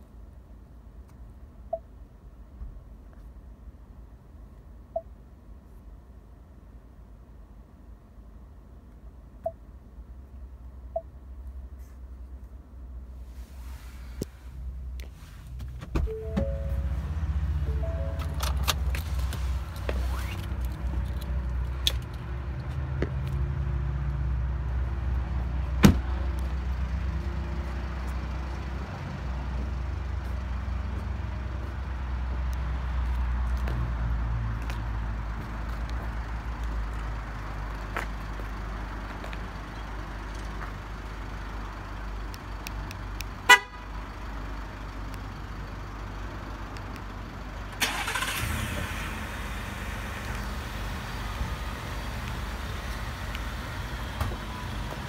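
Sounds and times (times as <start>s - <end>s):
low steady rumble: 0.0s - 23.1s
pickup truck horn chirp: 43.5s - 43.9s.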